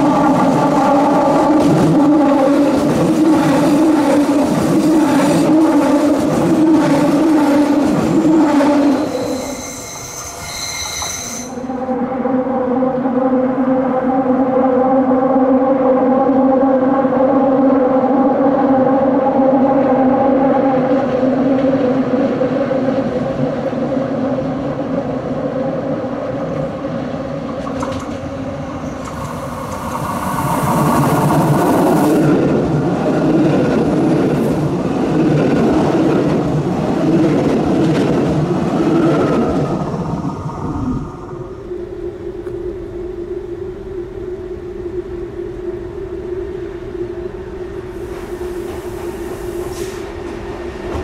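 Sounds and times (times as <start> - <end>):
electric train passing: 0.0 - 51.0
burst of hiss: 48.0 - 50.2.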